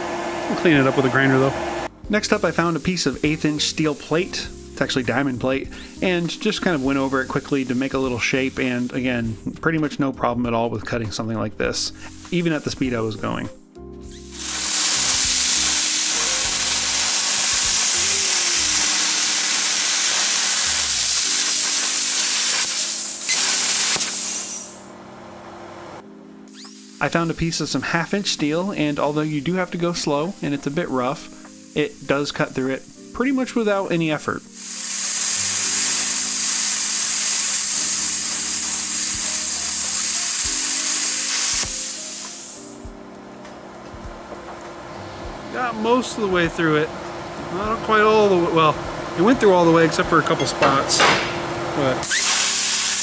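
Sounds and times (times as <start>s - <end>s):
plasma cutter hissing: 0.6s - 9.4s, 12.0s - 12.9s, 14.1s - 24.9s, 26.5s - 42.8s, 52.0s - 53.0s.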